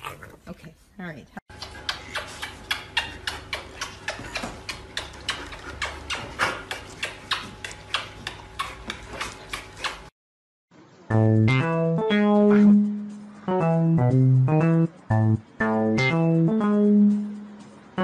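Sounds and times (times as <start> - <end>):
rapid clicking taps: 1.6 - 10.0.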